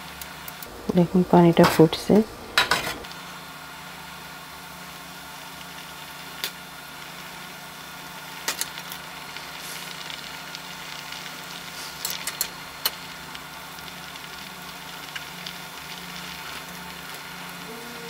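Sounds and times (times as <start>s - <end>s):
water boiling in saucepan: 0.0s - 18.0s.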